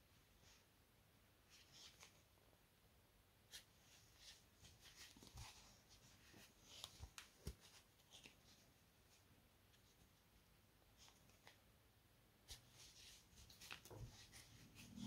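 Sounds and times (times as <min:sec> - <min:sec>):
cotton cord rustling: 0:01.4 - 0:02.4, 0:03.5 - 0:11.7, 0:12.4 - 0:15.0.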